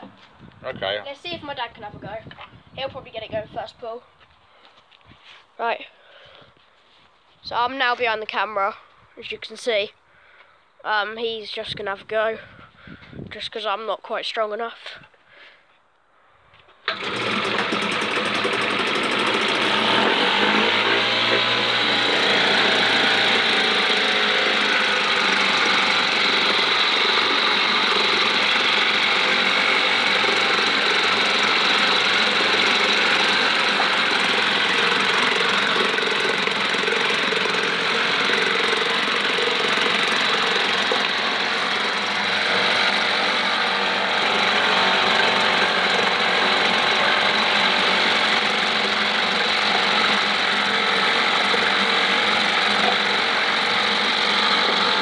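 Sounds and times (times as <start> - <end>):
outboard motor running: 16.9 - 55.0
propeller churning water: 16.9 - 55.0.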